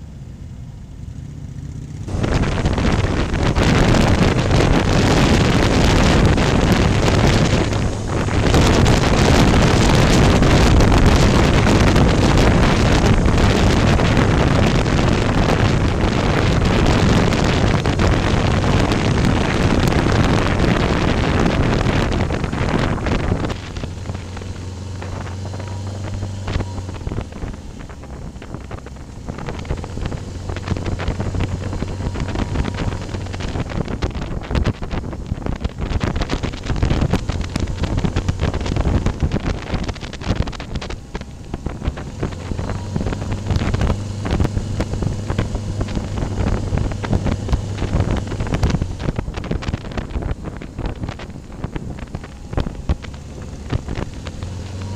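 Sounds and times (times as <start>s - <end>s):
motorcycle engine hum: 0.0s - 54.9s
wind buffeting microphone: 2.0s - 54.9s.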